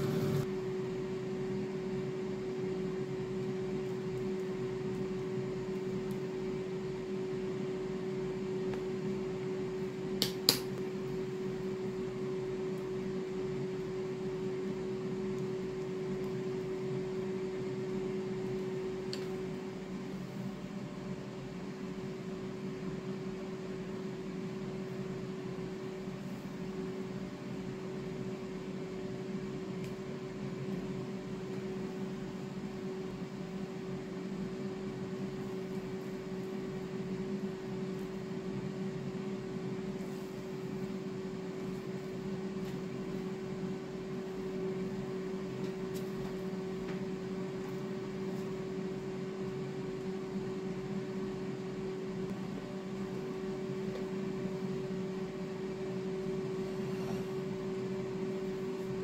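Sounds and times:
steady mechanical hum: 0.0 - 59.0.

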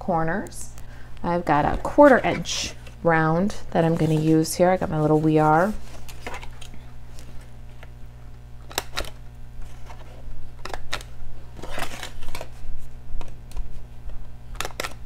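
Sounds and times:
card rustling: 3.8 - 7.9.

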